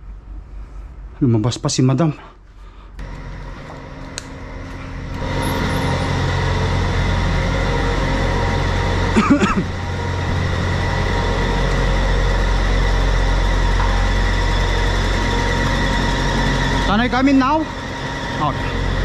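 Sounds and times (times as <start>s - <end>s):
diesel truck engine idling: 3.0s - 19.0s.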